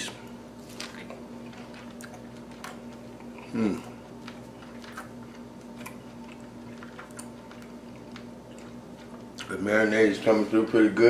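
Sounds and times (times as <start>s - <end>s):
steady low hum: 0.0s - 11.0s
man chewing: 0.6s - 9.5s
man humming mm of approval: 3.4s - 4.0s.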